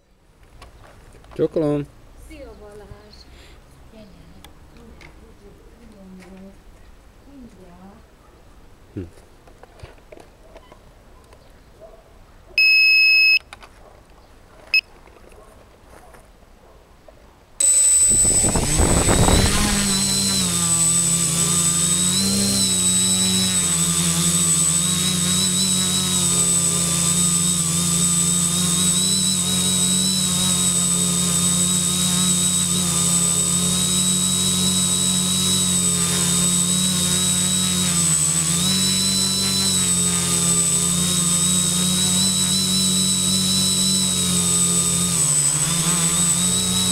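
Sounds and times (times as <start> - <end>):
buzzer beeps: 12.6 - 13.4, 17.6 - 20.9
drone motors buzzing whine: 17.6 - 46.9.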